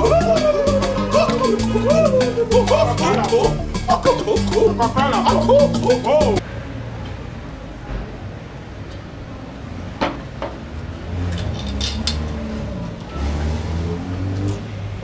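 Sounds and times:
vehicle engine rumbling: 10.2 - 15.0.

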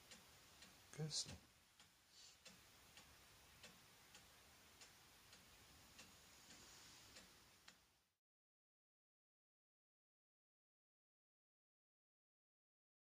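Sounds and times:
faint clock ticking: 0.0 - 8.1.

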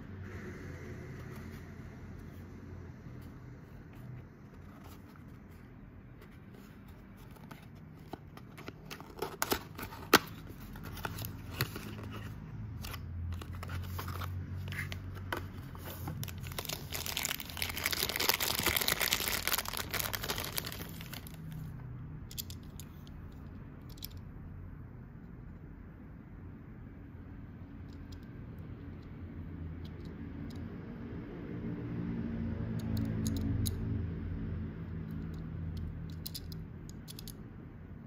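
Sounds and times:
plastic packaging crinkling: 15.8 - 21.6.

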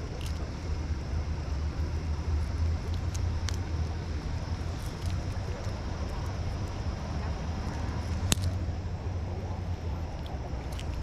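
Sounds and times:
steady low rumble: 0.0 - 11.0
small sharp clicks: 7.7 - 8.6.

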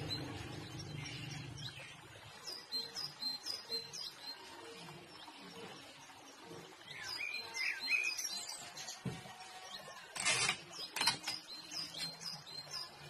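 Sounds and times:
adhesive tape pulled and torn: 10.2 - 11.4
small birds chirping: 10.6 - 13.0.

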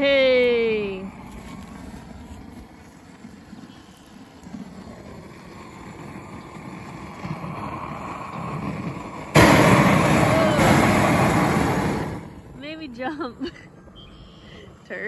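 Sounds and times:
gas torch rushing: 0.7 - 12.7.

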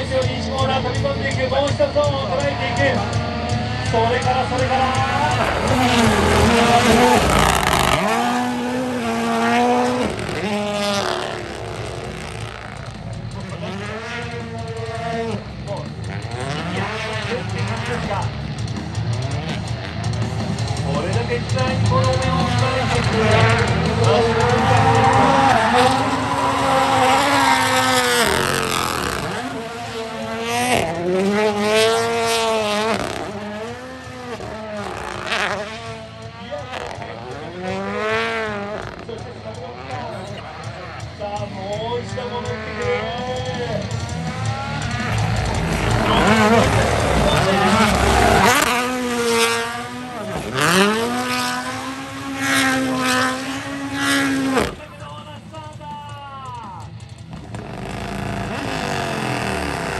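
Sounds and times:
rally car engine revving: 0.0 - 59.9
spinning tyres hissing: 57.4 - 59.9.

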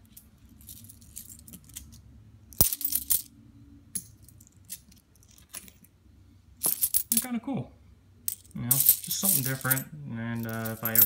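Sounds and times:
coins clinking: 0.0 - 2.0, 2.6 - 3.3, 3.9 - 5.9, 6.6 - 7.3, 8.3 - 11.0.

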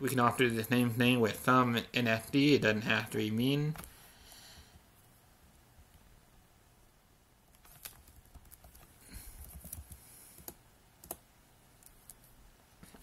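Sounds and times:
typing on computer keyboard: 7.6 - 11.2.

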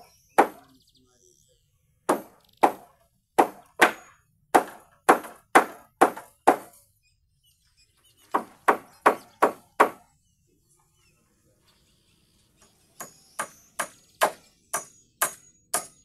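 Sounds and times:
hammer striking nails into wood: 0.0 - 0.6, 2.1 - 6.8, 8.4 - 10.0, 13.0 - 16.0.

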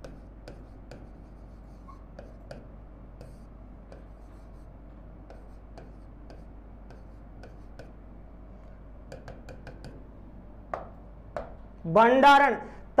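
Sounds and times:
pen tapping on screen: 0.0 - 4.4, 5.3 - 8.0, 9.1 - 10.0, 10.7 - 11.6
steady low hum: 0.0 - 13.0.

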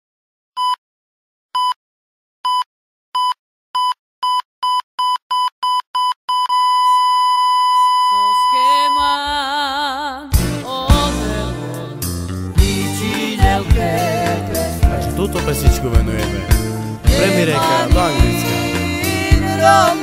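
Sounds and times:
heart monitor beeps: 0.6 - 0.8, 1.6 - 1.8, 2.4 - 9.2
flatline tone: 6.5 - 9.3
music: 9.1 - 20.0.

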